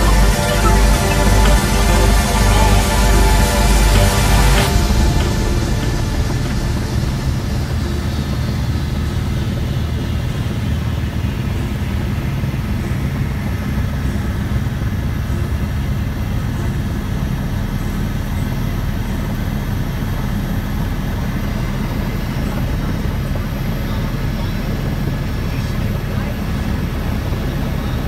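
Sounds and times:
high whine sliding down: 0:00.0 - 0:12.5
helicopter low drone inside cabin: 0:00.0 - 0:28.0.

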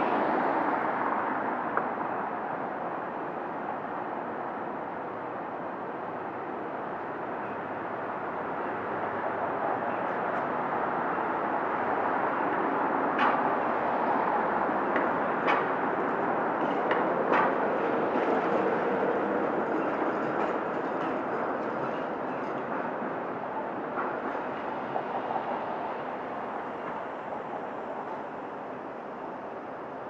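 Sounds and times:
streetcar wheels rumbling on rails: 0:00.0 - 0:30.0
clicks and clanks over track joints: 0:12.5 - 0:27.7.

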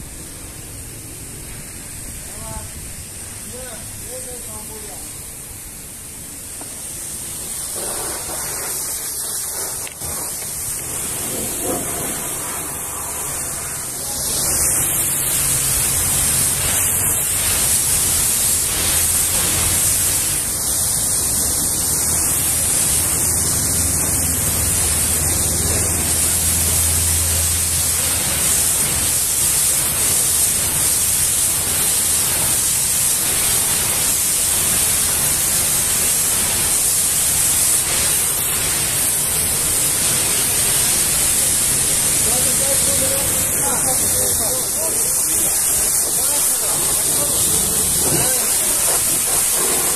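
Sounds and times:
pressure washer jet hissing on metal: 0:00.0 - 0:49.9.

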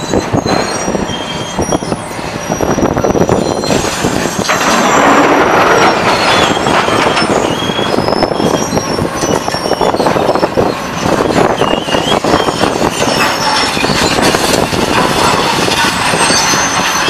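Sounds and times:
high metallic squeals: 0:00.0 - 0:17.0
metal shredder clattering and grinding: 0:03.2 - 0:17.0
scrap load dropping: 0:03.5 - 0:08.6.

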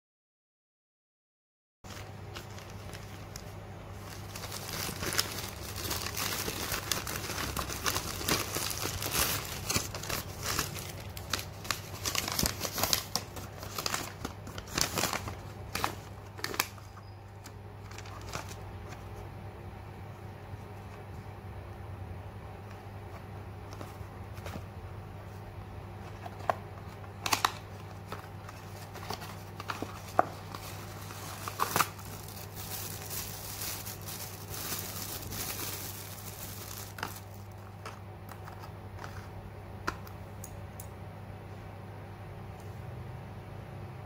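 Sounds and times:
plastic bag crinkling: 0:01.9 - 0:16.9, 0:27.3 - 0:37.9
steady low hum: 0:01.9 - 0:44.0.

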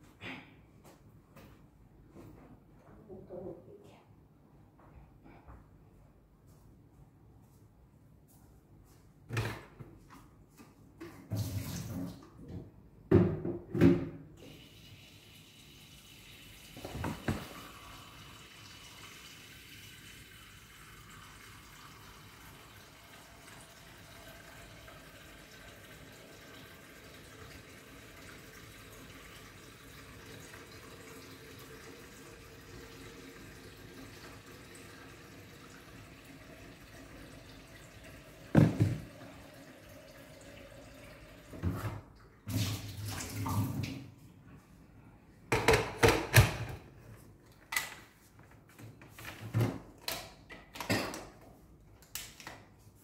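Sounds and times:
water running from a tap: 0:14.4 - 0:41.6, 0:42.5 - 0:43.9.

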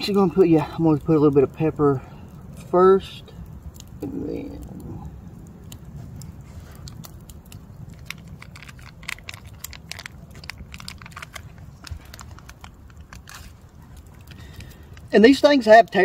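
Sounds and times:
low steady rumble: 0:00.0 - 0:16.0
packet crinkling: 0:05.6 - 0:16.0.

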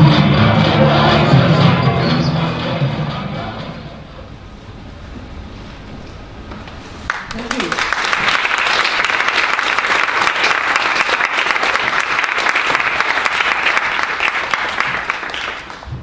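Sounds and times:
audience applauding: 0:07.1 - 0:16.0.

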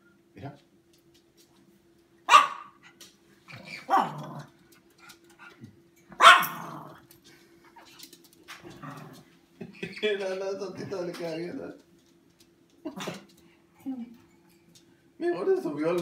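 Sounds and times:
faint steady hum: 0:00.0 - 0:16.0
small dog barking: 0:02.3 - 0:02.8, 0:03.6 - 0:04.5, 0:06.2 - 0:06.9.

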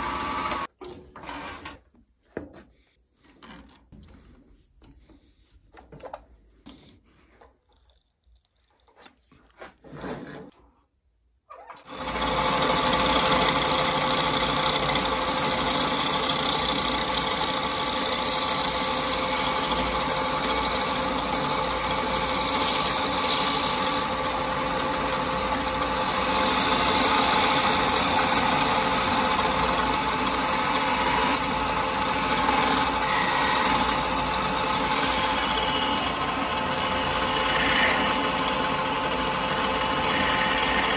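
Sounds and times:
gouge cutting spinning wood: 0:00.0 - 0:00.7, 0:11.9 - 0:40.9
wood lathe running: 0:00.0 - 0:00.7, 0:11.8 - 0:40.9.

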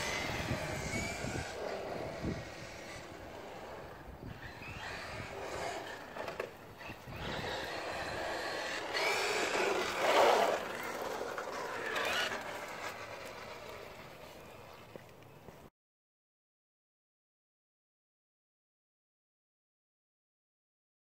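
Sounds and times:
electric toy truck motor whine: 0:00.0 - 0:14.9
tyre noise on concrete: 0:04.4 - 0:15.7.

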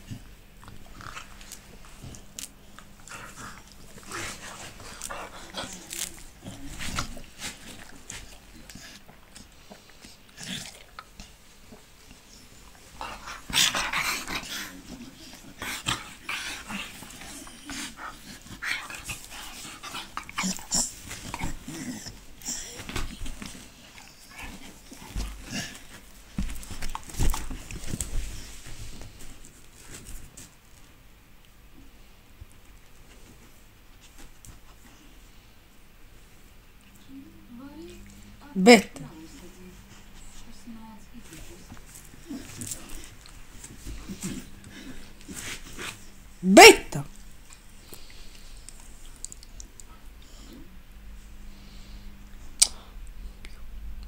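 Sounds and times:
dogs mouthing and scuffling: 0:00.0 - 0:30.9, 0:36.2 - 0:46.4.

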